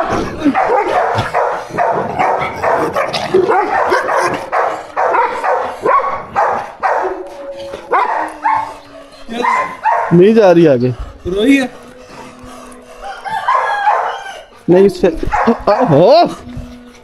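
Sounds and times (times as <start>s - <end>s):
dog barking aggressively: 0.3s - 7.2s, 7.9s - 8.8s, 9.4s - 10.3s, 13.4s - 14.4s, 15.2s - 16.1s
dog whining: 2.2s - 10.2s, 11.8s - 14.7s.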